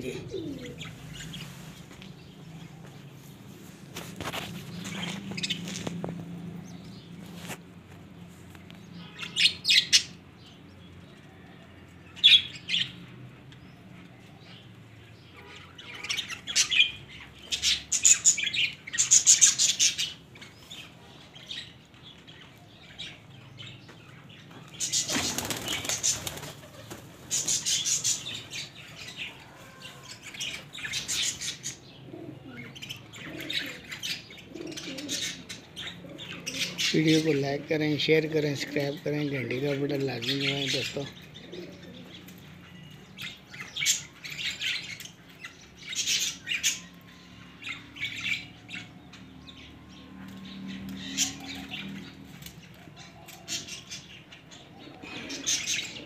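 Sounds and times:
pigeons flapping wings: 0:24.9 - 0:27.8.

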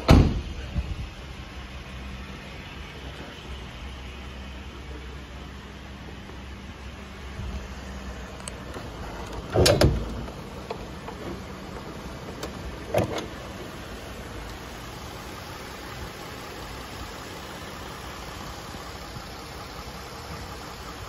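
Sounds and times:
engine idling hum: 0:00.0 - 0:21.0
short clunks: 0:08.7 - 0:13.4.

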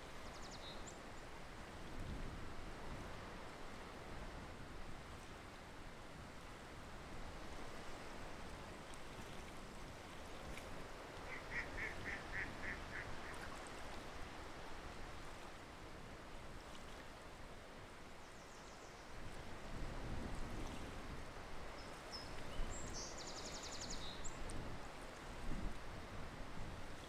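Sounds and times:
waterfowl calling high notes: 0:11.3 - 0:13.1.

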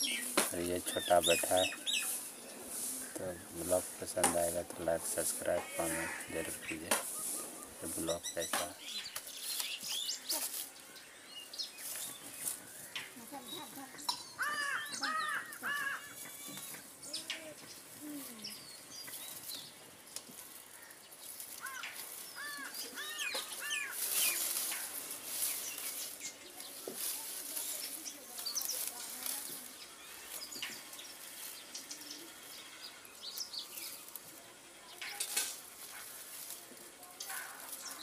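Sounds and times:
bamboo leaves rustling: 0:00.0 - 0:38.0
birds chirping: 0:00.0 - 0:38.0.

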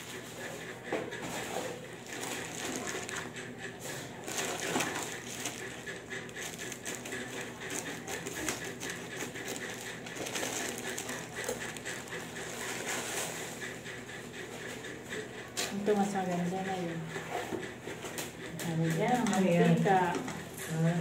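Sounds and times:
scissors cutting plastic: 0:01.3 - 0:13.4
plastic pouch crinkling: 0:02.0 - 0:03.3, 0:04.2 - 0:12.8.

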